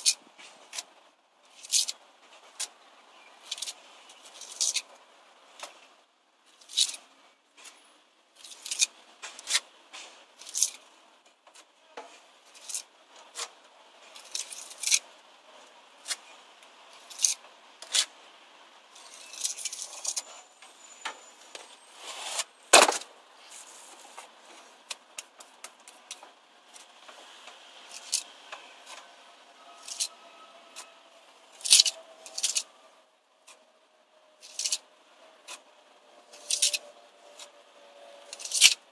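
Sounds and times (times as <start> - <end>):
steel tool scraping mortar joints: 1.5 - 4.9, 6.6 - 7.8, 8.4 - 9.6, 10.4 - 10.8, 12.0 - 15.0, 16.9 - 18.1, 19.0 - 23.0, 25.0 - 32.8, 34.4 - 34.8, 36.3 - 37.6, 38.3 - 38.8.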